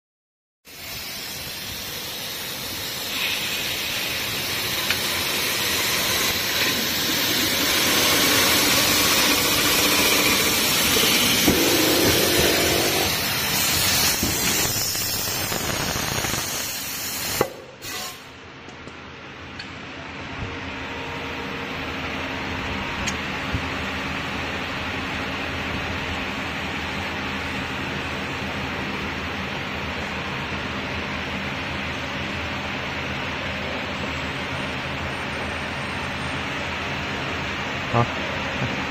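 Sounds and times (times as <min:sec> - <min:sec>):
abrasive hissing on metal: 0:00.7 - 0:18.3
machine motor running: 0:04.3 - 0:13.6.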